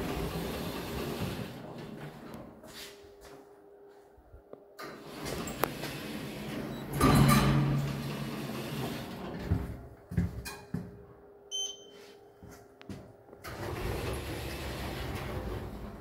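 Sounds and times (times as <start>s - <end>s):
keypad beep: 11.5s - 12.0s.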